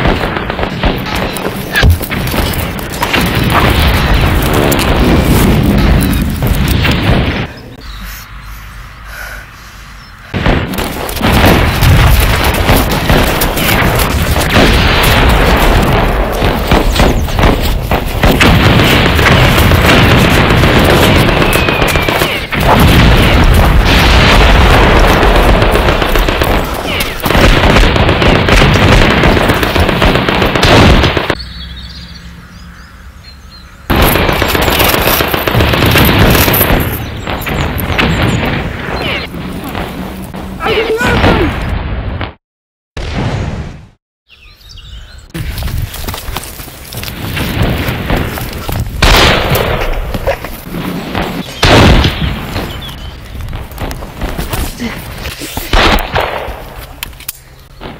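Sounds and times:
continuous gunfire: 0.0s - 7.5s, 10.3s - 31.4s, 33.9s - 42.4s, 47.1s - 56.8s
explosions: 0.0s - 7.8s, 10.3s - 31.4s, 33.9s - 42.4s, 43.0s - 44.0s, 47.1s - 56.8s
birds chirping: 7.4s - 10.3s, 16.6s - 17.7s, 21.2s - 22.5s, 31.3s - 34.9s, 36.5s - 39.7s, 44.3s - 46.1s, 50.3s - 53.6s, 57.4s - 57.9s
loud blast: 10.3s - 31.4s.

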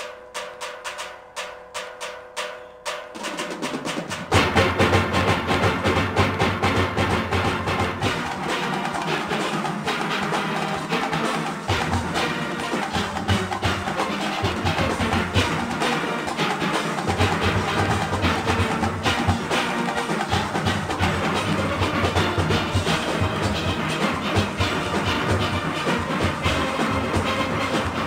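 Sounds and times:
driving percussion beat: 0.0s - 28.0s
steelpans playing: 7.3s - 28.0s.

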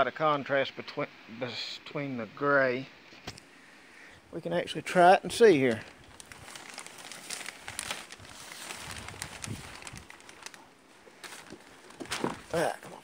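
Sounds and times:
plastic sheeting crinkling: 4.9s - 13.0s.

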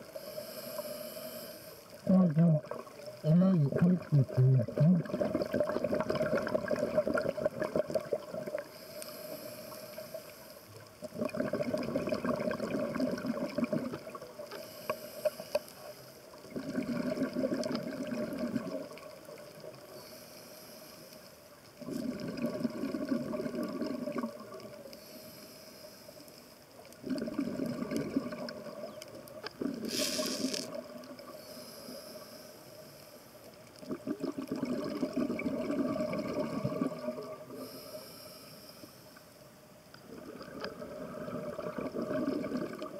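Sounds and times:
exhaled bubbles bursting underwater: 2.1s - 8.6s, 11.1s - 14.2s, 16.5s - 19.0s, 21.8s - 24.7s, 27.0s - 29.0s, 33.8s - 37.6s, 40.1s - 42.9s
short sharp hiss: 29.8s - 30.7s.

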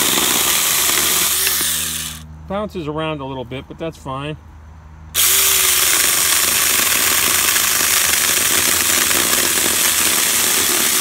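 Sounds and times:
electric chainsaw cutting tree limb: 0.0s - 2.2s, 5.2s - 11.0s.

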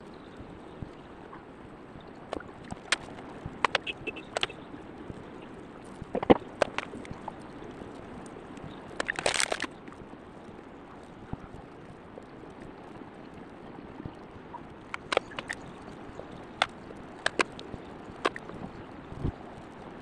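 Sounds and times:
sharp clicks: 2.3s - 4.6s, 14.9s - 15.7s, 16.6s - 17.6s, 18.2s - 18.5s.

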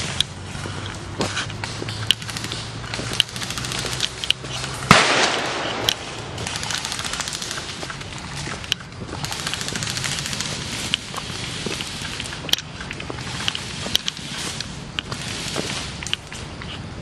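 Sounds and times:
automatic airsoft fire: 2.2s - 7.8s, 9.2s - 11.0s.

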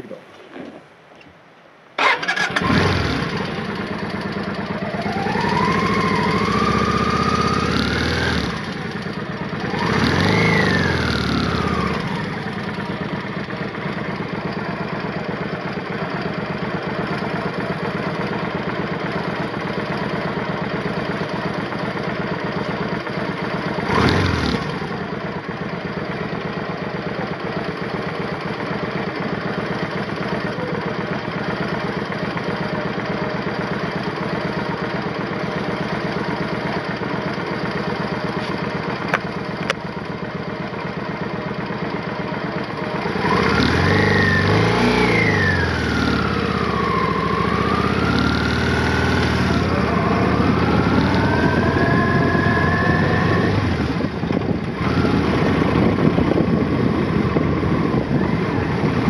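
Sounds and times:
motorcycle engine revving and idling: 2.0s - 59.0s.

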